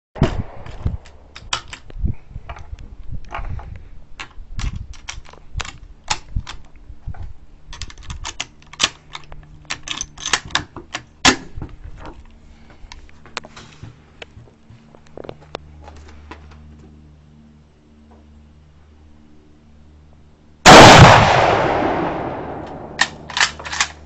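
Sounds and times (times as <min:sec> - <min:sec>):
rifle cartridges clicking into magazine: 0:07.8 - 0:11.1, 0:22.6 - 0:24.0.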